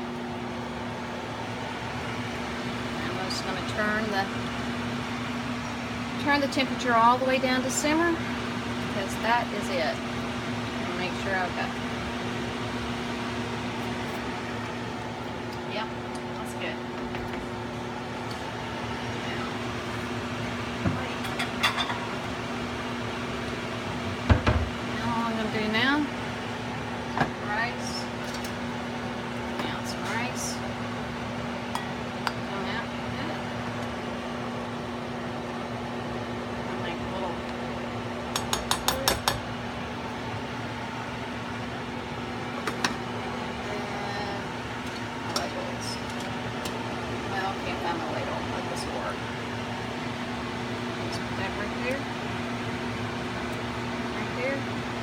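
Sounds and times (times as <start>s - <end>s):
mechanical hum: 0.0s - 55.0s
spoon tapping metal pot and plate: 38.3s - 39.4s.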